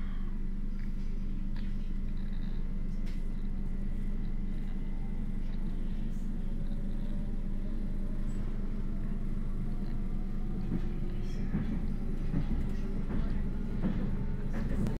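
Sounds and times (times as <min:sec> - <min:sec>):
train interior rumble: 0:03.0 - 0:15.0.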